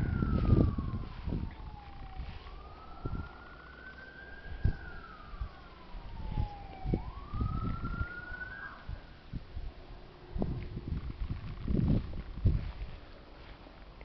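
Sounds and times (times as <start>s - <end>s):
siren wailing: 0.0s - 9.4s.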